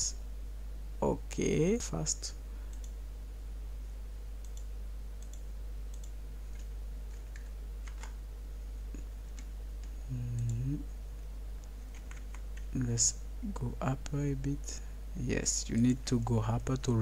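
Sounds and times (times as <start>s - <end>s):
steady low hum: 0.0s - 17.0s
person humming: 10.0s - 10.9s.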